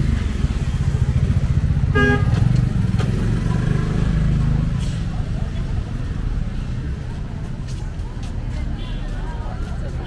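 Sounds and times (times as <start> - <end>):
car horn toot: 1.9 - 2.4.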